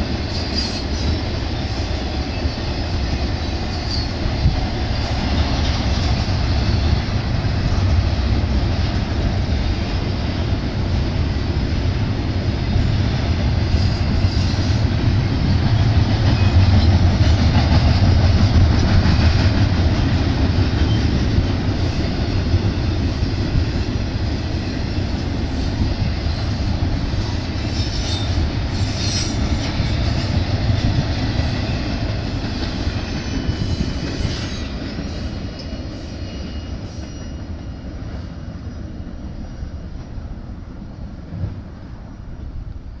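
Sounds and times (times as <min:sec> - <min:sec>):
freight train wheels rumbling: 0:00.0 - 0:43.0
high wheel squeal: 0:03.7 - 0:04.2, 0:27.7 - 0:29.9, 0:33.0 - 0:37.6.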